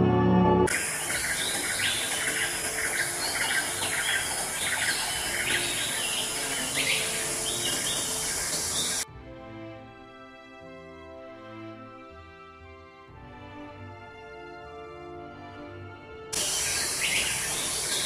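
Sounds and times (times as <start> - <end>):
small birds chirping: 0.7 - 9.0, 16.4 - 18.0
steady high hiss: 0.7 - 9.0, 16.4 - 18.0.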